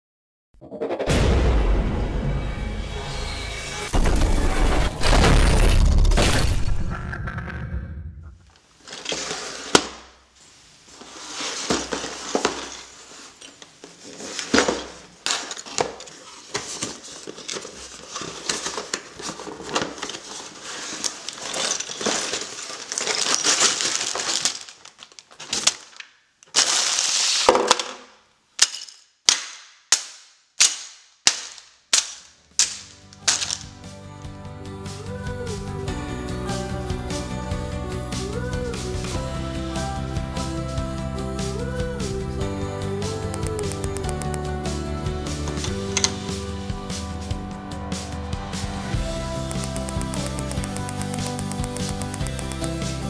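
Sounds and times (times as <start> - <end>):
cardboard scraping and rustling: 8.8 - 10.1, 10.8 - 27.8
plastic bags crinkling: 10.9 - 28.0, 31.4 - 33.8.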